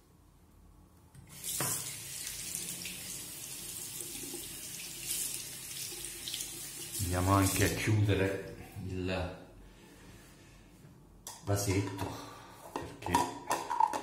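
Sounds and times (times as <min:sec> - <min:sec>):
water running into sink: 0:01.3 - 0:07.8.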